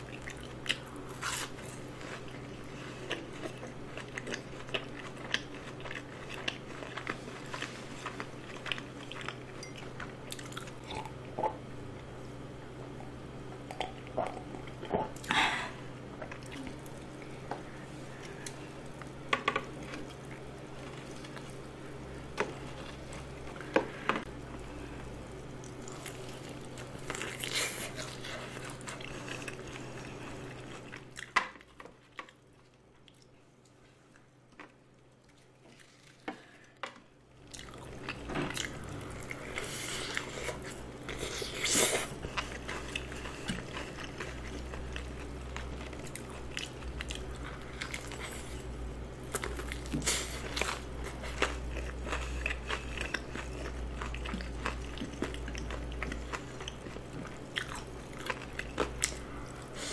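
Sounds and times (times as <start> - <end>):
biting and chewing chicken: 37.4 - 59.7.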